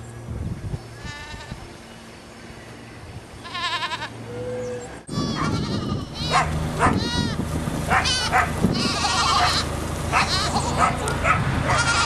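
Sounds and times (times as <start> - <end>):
goats bleating: 3.4 - 4.2, 5.1 - 11.0, 11.7 - 12.0.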